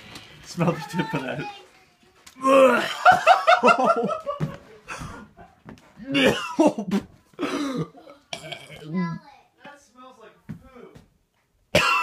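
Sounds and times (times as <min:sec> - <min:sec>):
children laughing: 0:02.4 - 0:08.2
children coughing: 0:06.0 - 0:08.9, 0:11.7 - 0:12.0.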